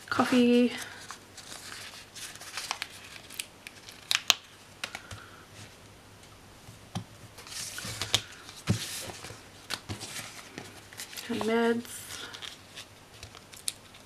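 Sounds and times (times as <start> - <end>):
paper sheets rustling: 0.3 - 4.2, 7.4 - 14.0.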